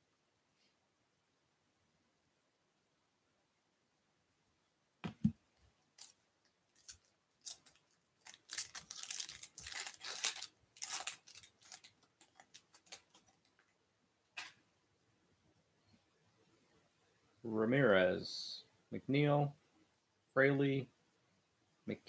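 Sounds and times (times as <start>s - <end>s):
wrapper tearing and crinkling: 6.0s - 13.6s.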